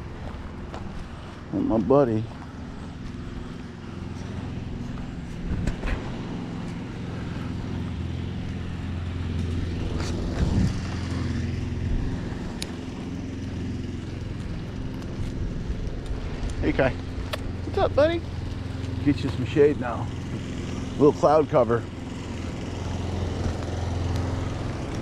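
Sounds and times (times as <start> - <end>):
engine humming: 0.0 - 25.0
short clicks and scuffs: 5.3 - 6.9, 17.2 - 17.6.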